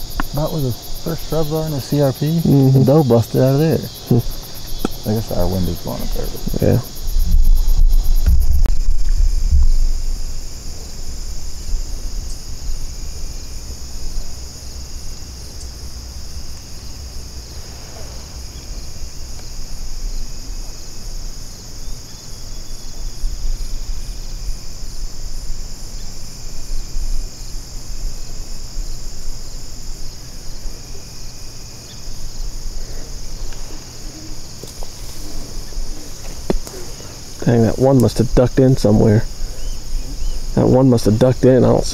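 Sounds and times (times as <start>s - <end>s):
insects trilling: 0.0s - 41.9s
low rumble: 7.1s - 12.2s.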